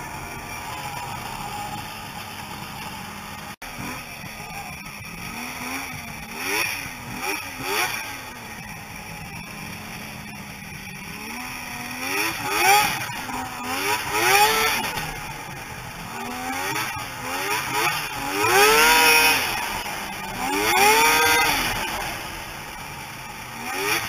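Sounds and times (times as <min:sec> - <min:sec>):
snowmobile engine revving: 0:00.0 - 0:24.0.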